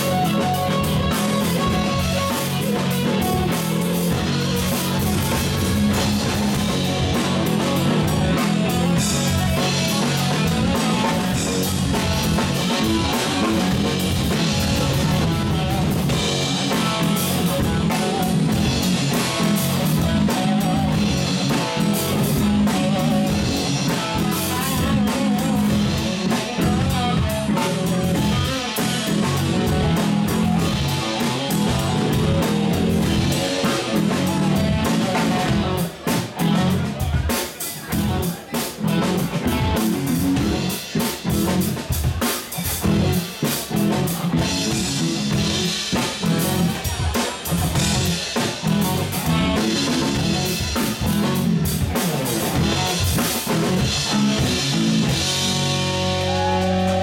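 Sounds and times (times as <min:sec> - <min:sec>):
bass guitar: 0:00.0 - 0:57.0
drum kit beat: 0:00.0 - 0:57.0
electric guitar: 0:00.0 - 0:57.0.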